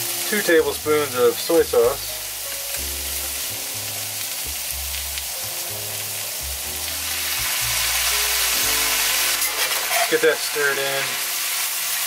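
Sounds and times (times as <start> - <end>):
background music with low notes: 0.0 - 12.0
cabbage sizzling in a skillet: 0.0 - 12.0.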